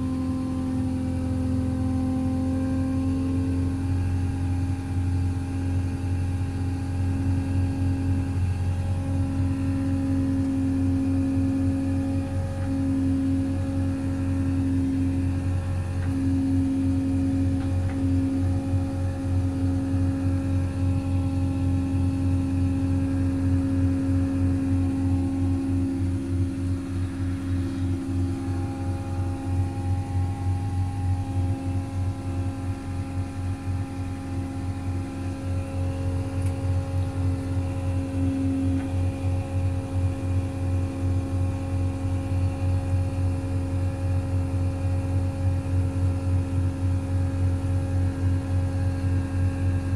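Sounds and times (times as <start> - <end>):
diesel engine humming: 0.0 - 40.0
steady higher tone: 7.0 - 42.1.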